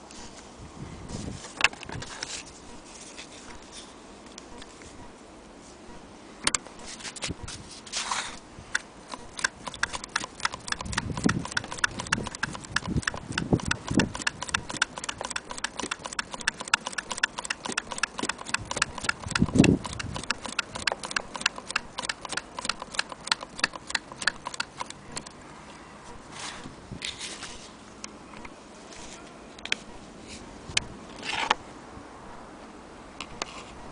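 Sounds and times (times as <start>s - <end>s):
sewing machine clicking: 9.1s - 25.3s.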